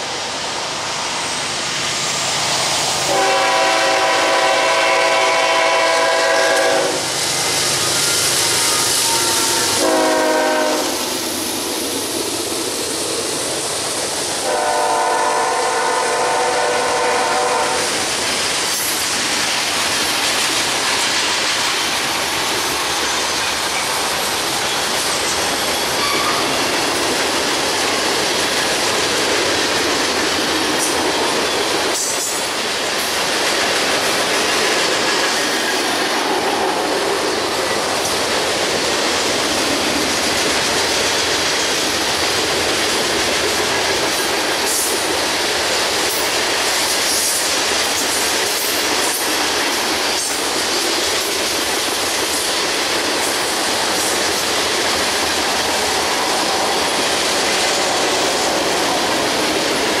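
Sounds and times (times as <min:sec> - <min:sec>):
train wheels rumbling on rail: 0:00.0 - 1:00.0
train wheel clacks: 0:17.0 - 1:00.0.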